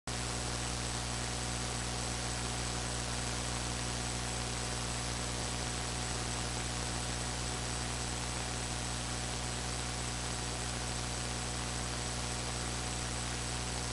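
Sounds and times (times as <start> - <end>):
mains hum: 0.1 - 13.9.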